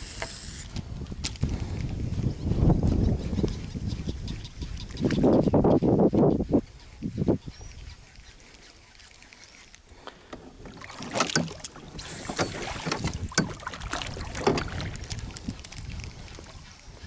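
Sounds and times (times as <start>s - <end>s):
wind on microphone: 0.0s - 9.6s, 10.5s - 17.0s
water splashing: 8.5s - 16.6s
knocks and clicks on kayak hull: 10.3s - 15.6s.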